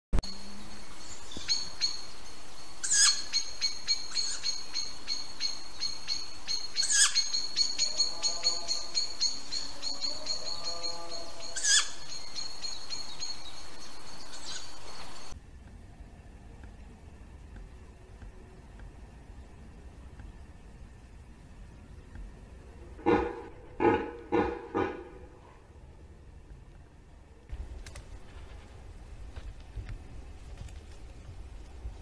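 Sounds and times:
harsh bird calls: 0:00.6 - 0:15.4, 0:22.7 - 0:25.6
high rapid trilling bird chirp: 0:02.8 - 0:15.4
lower bird call: 0:02.8 - 0:15.4, 0:22.7 - 0:25.8.

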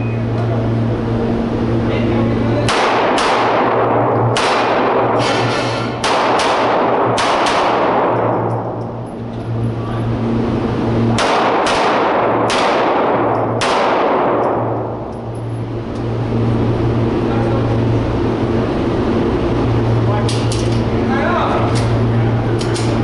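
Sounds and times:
steady low hum: 0:00.0 - 0:23.0
echoing pistol shots: 0:02.7 - 0:05.2, 0:06.0 - 0:08.4, 0:11.1 - 0:14.8.

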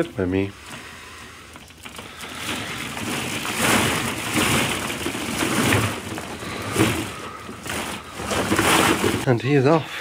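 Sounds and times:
plastic balls rattling: 0:00.0 - 0:09.3.

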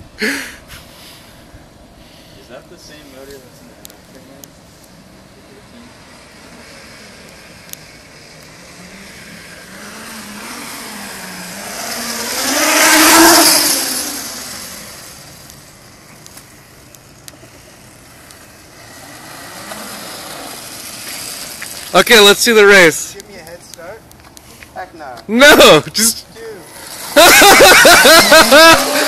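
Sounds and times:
electric motor whine: 0:05.8 - 0:16.1, 0:17.9 - 0:21.9, 0:26.6 - 0:29.0.

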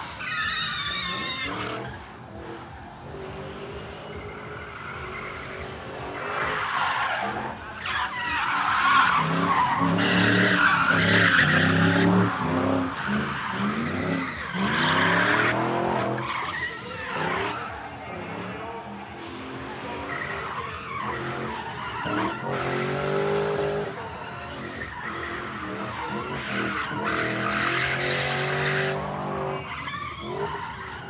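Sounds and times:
tyre squeal: 0:00.0 - 0:02.1, 0:04.0 - 0:18.1, 0:19.8 - 0:31.0
car engines revving: 0:00.0 - 0:31.0.

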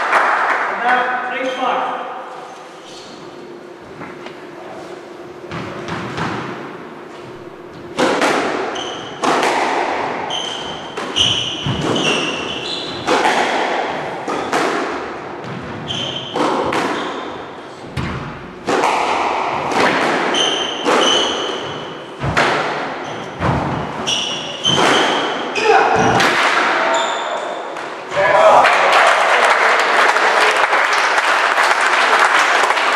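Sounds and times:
squash ball cracking off rackets: 0:07.9 - 0:17.3, 0:17.9 - 0:23.8
shoes squeaking on wooden floor: 0:10.2 - 0:13.1, 0:15.7 - 0:17.3, 0:23.0 - 0:25.3.

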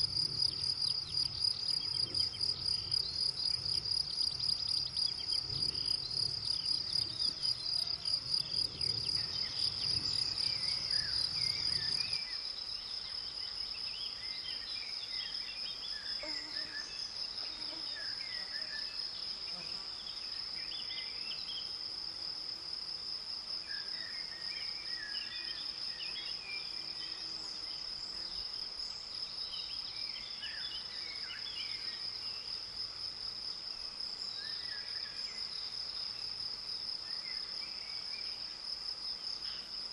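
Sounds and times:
insects buzzing: 0:00.0 - 0:39.9.

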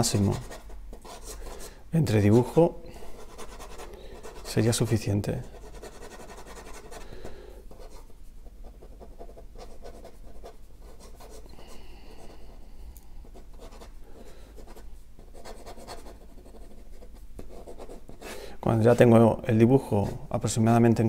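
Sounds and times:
pen scratching on paper: 0:00.0 - 0:01.7, 0:03.2 - 0:07.0, 0:07.7 - 0:11.4, 0:13.3 - 0:18.4.

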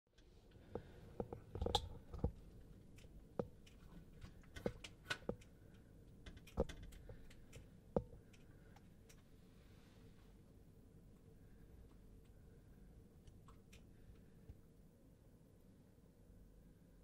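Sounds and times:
faint clicks and knocks: 0:00.1 - 0:09.4.

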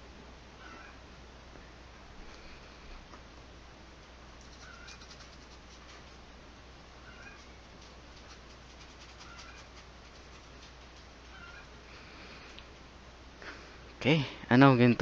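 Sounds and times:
paintbrush scratching on canvas: 0:04.4 - 0:06.2, 0:07.2 - 0:11.6.

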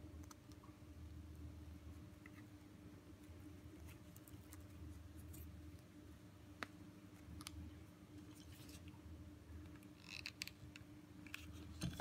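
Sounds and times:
faint steady hum: 0:00.0 - 0:12.0
soft rustle: 0:08.1 - 0:09.0.

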